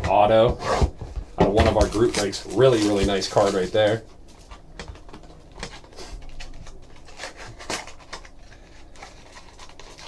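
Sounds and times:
cardboard box scraping: 0:00.3 - 0:01.0.

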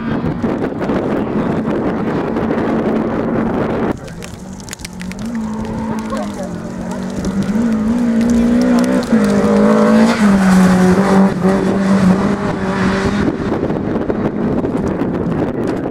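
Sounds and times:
rally car engine at high revs: 0:00.0 - 0:15.7
car rushing past: 0:05.2 - 0:15.1.

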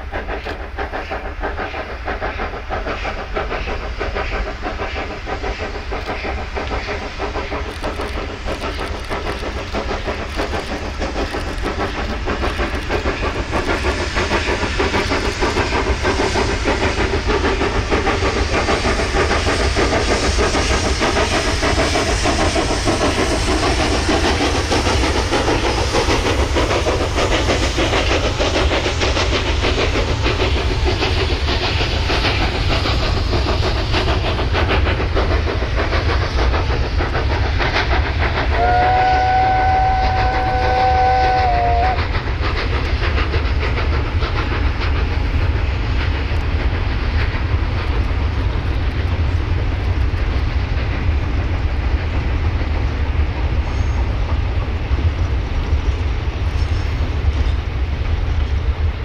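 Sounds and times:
steam locomotive exhaust: 0:00.0 - 0:59.0
steam whistle chord: 0:38.6 - 0:42.0.

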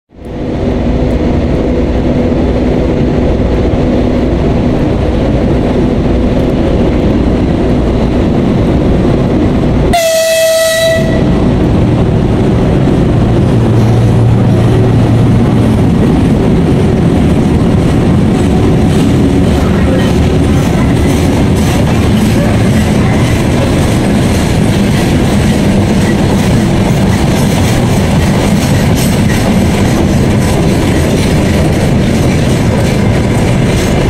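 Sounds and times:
freight train rumbling past: 0:00.1 - 0:34.0
train horn blast: 0:09.9 - 0:11.4.

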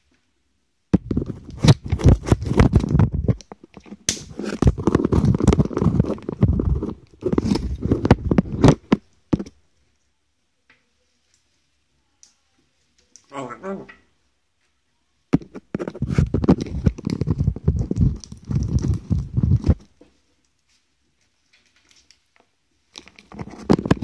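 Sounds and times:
parrot scratching and tearing: 0:01.0 - 0:08.9, 0:15.5 - 0:19.9, 0:23.0 - 0:24.0.

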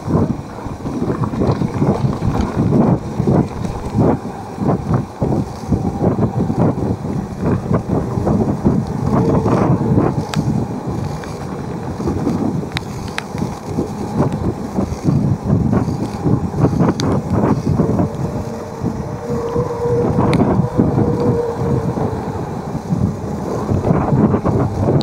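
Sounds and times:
low thumps: 0:00.0 - 0:05.0, 0:23.7 - 0:25.0
wind buffeting microphone: 0:00.0 - 0:25.0.

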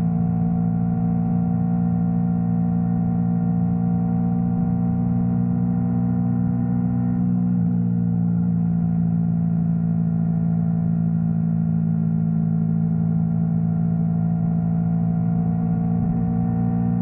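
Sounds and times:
motorcycle engine droning: 0:12.6 - 0:17.0.

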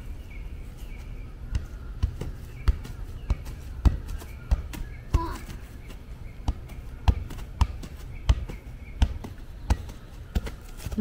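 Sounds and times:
soccer ball thudding off foot: 0:01.5 - 0:05.7, 0:06.4 - 0:11.0.

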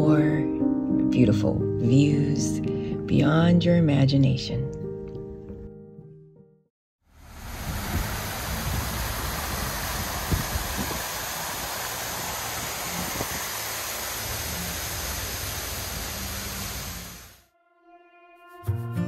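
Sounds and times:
road rumble: 0:07.1 - 0:17.4
water rushing over a spillway: 0:07.2 - 0:17.4
wind buffeting: 0:07.3 - 0:17.2.

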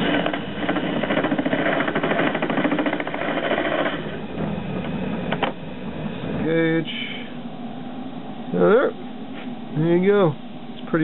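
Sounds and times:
metal lathe turning with rattle: 0:00.0 - 0:04.2.

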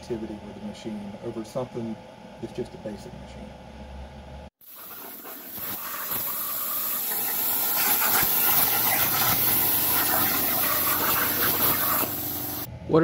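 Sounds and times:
plasma torch cutting steel: 0:04.6 - 0:12.7.

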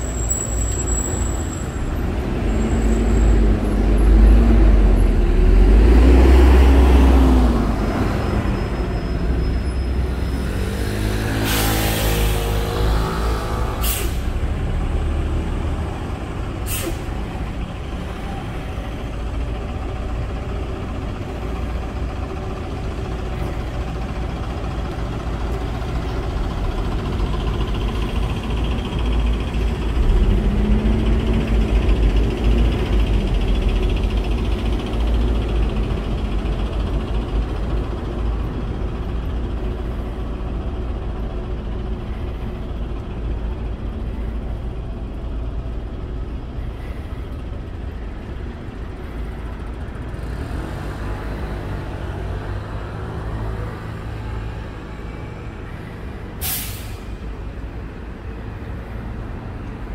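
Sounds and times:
bus engine rumbling: 0:00.0 - 0:59.9
air brake hisses: 0:11.4 - 0:12.6, 0:13.8 - 0:14.4, 0:16.6 - 0:17.2, 0:56.4 - 0:57.3.

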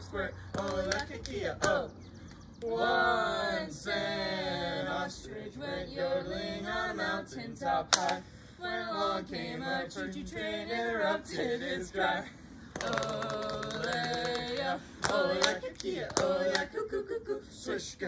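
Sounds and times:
group singing a cappella: 0:00.0 - 0:18.0.

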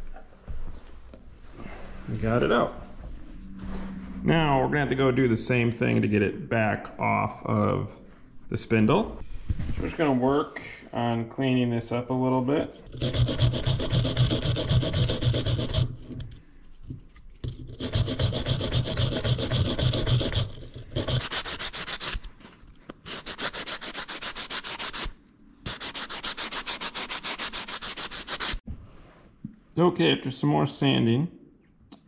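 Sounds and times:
sandpaper rubbing on steel: 0:13.0 - 0:16.0, 0:17.7 - 0:22.3, 0:23.1 - 0:28.6.

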